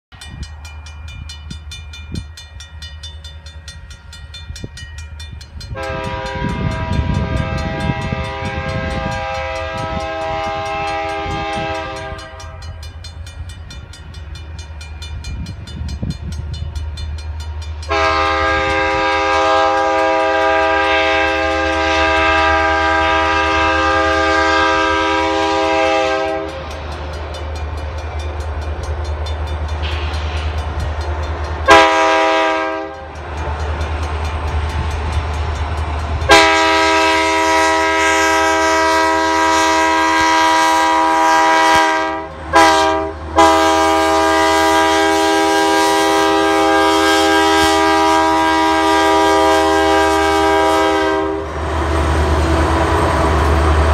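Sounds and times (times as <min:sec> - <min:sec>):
crossing bell ringing: 0:00.1 - 0:51.0
locomotive air horn blasts: 0:05.7 - 0:12.8, 0:17.9 - 0:26.7, 0:31.6 - 0:33.2, 0:36.2 - 0:51.6.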